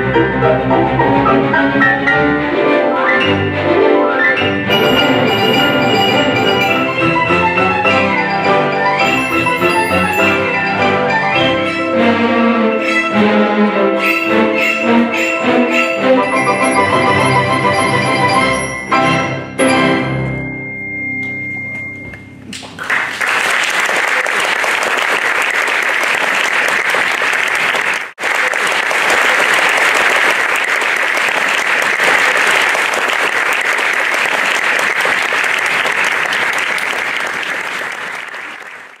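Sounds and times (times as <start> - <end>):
piano and orchestra chord: 0.0 - 20.7
audience applauding: 4.7 - 10.6, 22.5 - 39.0.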